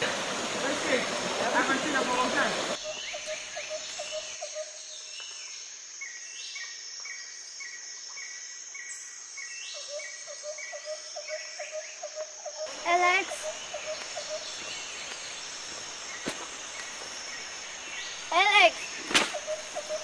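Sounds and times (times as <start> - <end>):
high insect buzz: 10.9 - 20.0.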